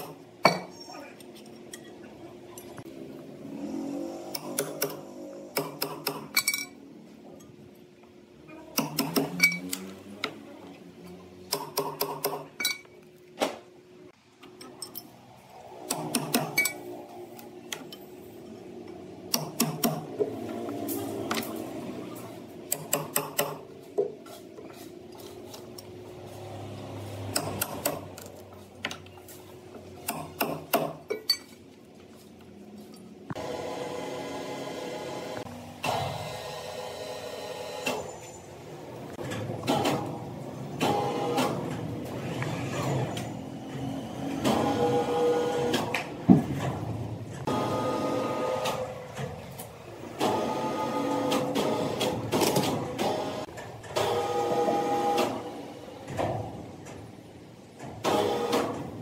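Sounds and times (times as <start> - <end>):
sharp metallic clinks and knocks: 14.6 - 15.2.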